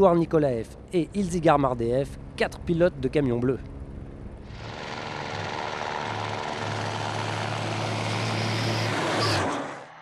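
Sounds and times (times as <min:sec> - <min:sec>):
low engine drone: 0:00.0 - 0:10.0
truck racing past: 0:04.5 - 0:10.0.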